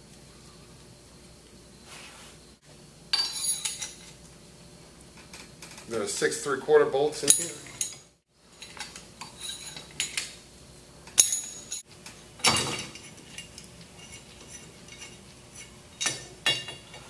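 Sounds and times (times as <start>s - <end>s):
metal tools clinking on steel: 3.1s - 4.2s, 7.2s - 10.4s, 11.1s - 17.0s.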